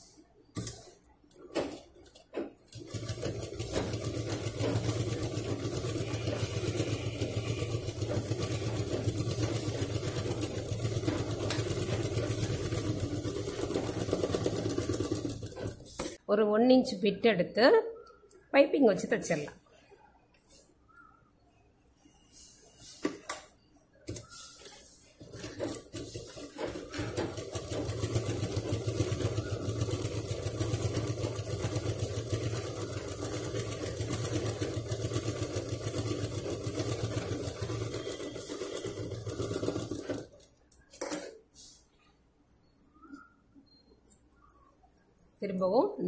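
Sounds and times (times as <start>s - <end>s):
sewing machine stitching: 0.6s - 16.2s, 24.1s - 41.4s.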